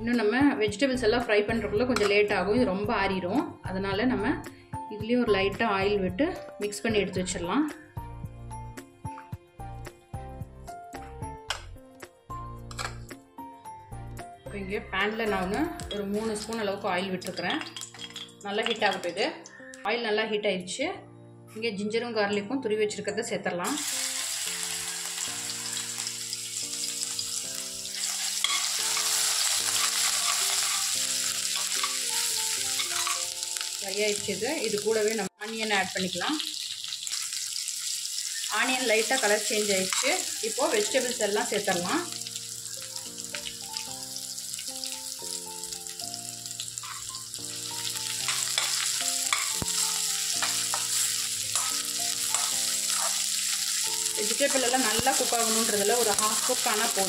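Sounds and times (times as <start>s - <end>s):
soft background music: 0.0s - 57.0s
ginger and garlic sizzling in oil: 15.0s - 19.4s, 23.6s - 57.0s
metal spoon scraping pan: 27.9s - 32.1s, 32.7s - 33.3s, 46.8s - 47.1s, 48.2s - 53.7s.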